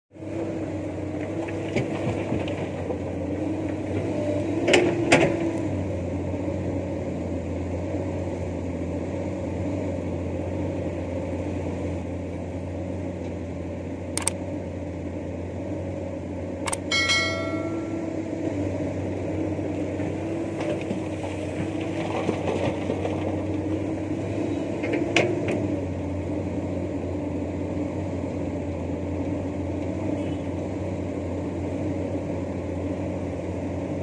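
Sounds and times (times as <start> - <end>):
excavator diesel engine running: 0.2 - 34.0
rock striking steel truck bed: 16.9 - 18.2.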